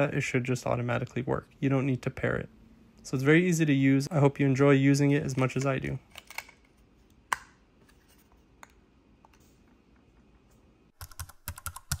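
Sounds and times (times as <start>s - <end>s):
keyboard typing clicks: 11.0s - 12.0s.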